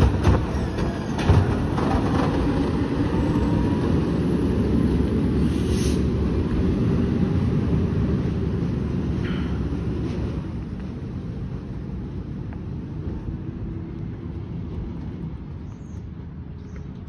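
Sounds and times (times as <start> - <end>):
garbage truck engine rumbling: 0.0 - 10.6.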